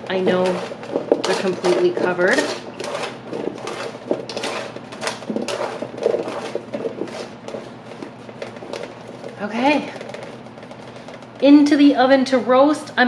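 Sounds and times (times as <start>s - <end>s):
florets tumbling on metal pan: 0.0s - 12.2s.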